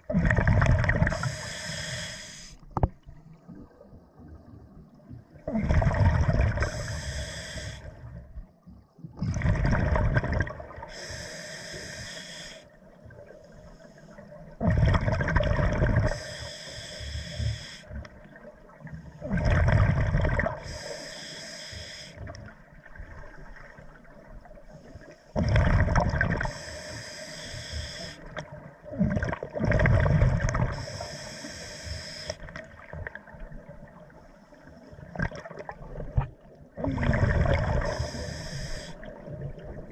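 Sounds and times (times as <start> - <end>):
bubbly exhale underwater: 0.0 - 1.2, 5.4 - 6.7, 9.2 - 10.8, 14.6 - 16.2, 19.2 - 20.6, 25.4 - 26.5, 28.9 - 30.8, 35.1 - 38.1
regulator valve hiss: 1.1 - 2.6, 6.7 - 7.9, 10.9 - 12.6, 16.1 - 17.9, 20.6 - 22.2, 26.5 - 28.3, 30.7 - 32.4, 37.9 - 39.0.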